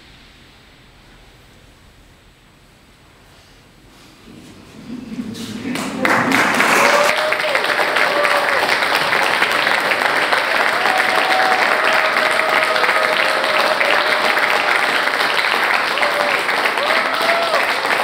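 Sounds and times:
audience applauding: 4.6s - 18.0s.

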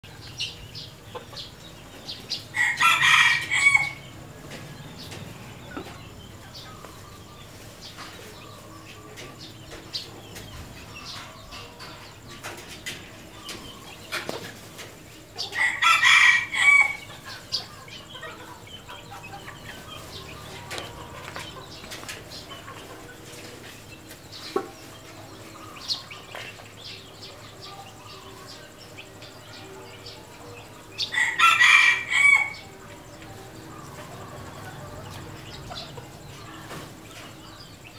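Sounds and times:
hen clucking: 0.1s - 29.4s, 30.4s - 37.9s
rooster crowing: 2.5s - 4.1s, 15.5s - 17.1s, 31.0s - 32.8s.

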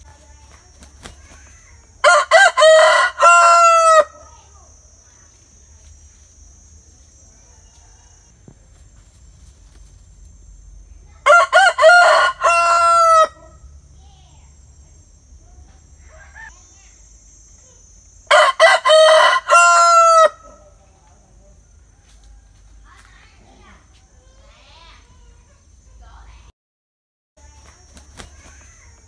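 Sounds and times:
rooster crowing: 2.0s - 4.4s, 7.4s - 8.4s, 11.2s - 13.7s, 16.0s - 16.5s, 18.3s - 20.8s, 21.5s - 22.9s.

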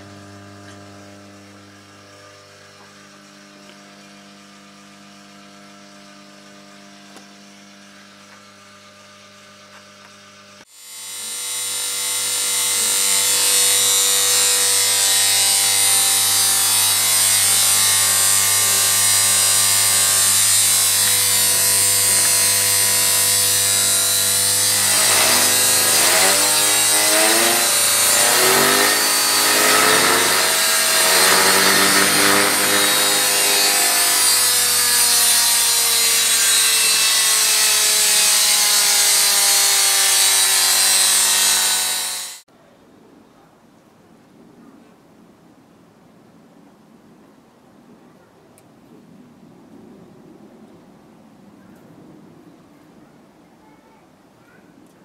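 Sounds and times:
electric motor whirring: 7.0s - 42.4s
transformer humming: 15.0s - 35.0s.

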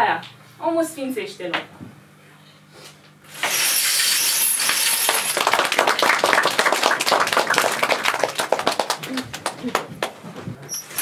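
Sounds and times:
audience applauding: 4.7s - 10.2s.

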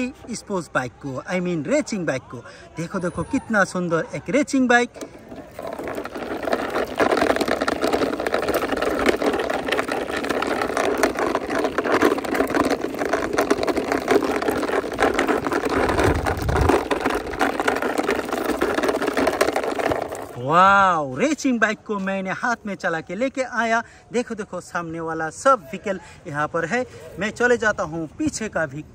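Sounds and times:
plastic toy wheels rattling on concrete: 0.0s - 20.6s.

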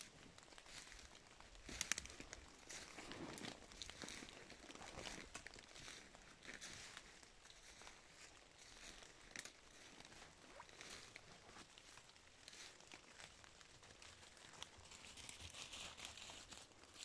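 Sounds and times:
leaves crunching underfoot: 0.0s - 13.3s
twigs snapping: 0.6s - 6.7s, 8.8s - 9.9s.

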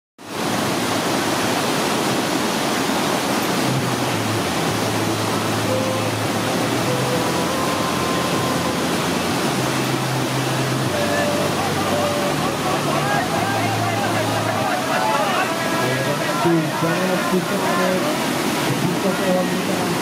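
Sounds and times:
whitewater rushing: 0.2s - 20.0s.

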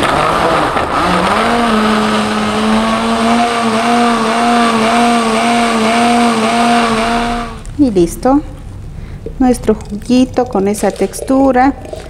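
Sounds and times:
blender running: 0.0s - 7.6s.

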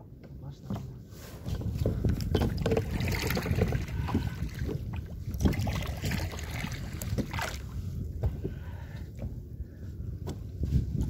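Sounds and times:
water slapping kayak hull: 1.4s - 9.6s
wind buffeting microphone: 1.4s - 11.0s.

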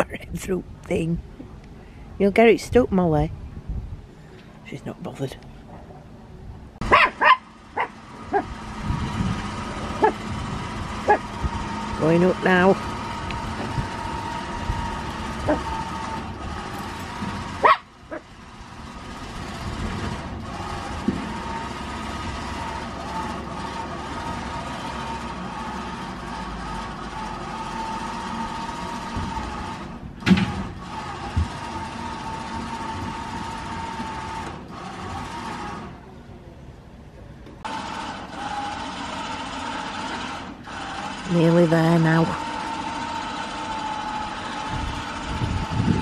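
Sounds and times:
lorry machinery hauling: 4.0s - 46.0s
winch whining: 6.8s - 36.1s, 37.6s - 46.0s
dog yipping: 6.9s - 8.5s, 17.6s - 18.2s.

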